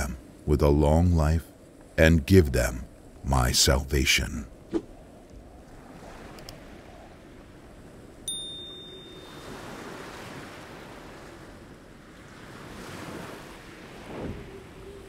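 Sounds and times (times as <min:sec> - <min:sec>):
bell-like ding: 0:08.3 - 0:09.6
ocean surf breaking: 0:08.3 - 0:15.0.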